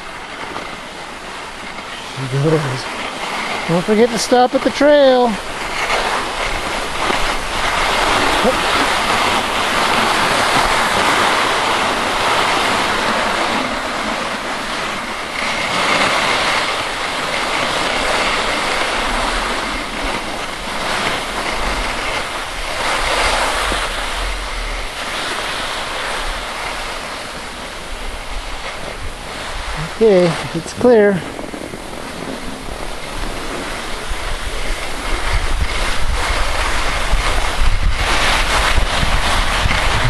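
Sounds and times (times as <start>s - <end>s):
skis sliding over snow: 0.0s - 40.0s
wind buffeting microphone: 0.0s - 40.0s.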